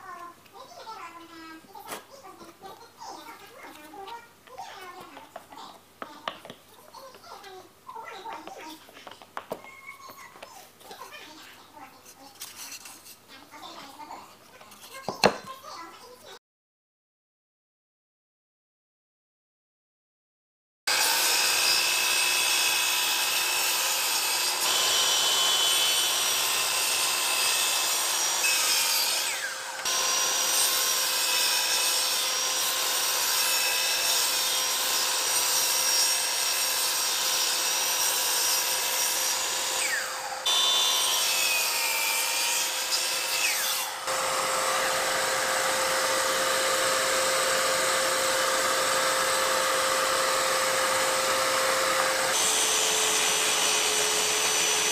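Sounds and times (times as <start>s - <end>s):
saw blade rasping through wood: 20.9s - 54.9s
miter saw motor whine: 44.1s - 54.9s.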